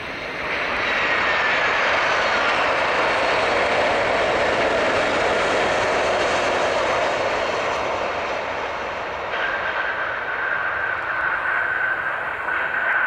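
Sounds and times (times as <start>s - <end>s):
jet engines rushing: 0.0s - 13.0s
thin high whine: 8.2s - 13.0s.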